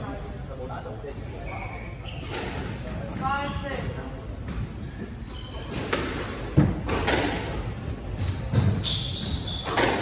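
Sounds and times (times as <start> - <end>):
shoes squeaking on wooden floor: 1.4 - 3.8, 4.4 - 6.1, 8.1 - 10.0
squash ball hits: 8.4 - 10.0.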